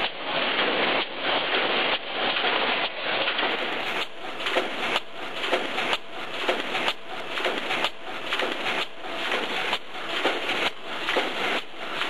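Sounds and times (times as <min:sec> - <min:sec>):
welding machine hissing clatter: 0:00.0 - 0:12.0.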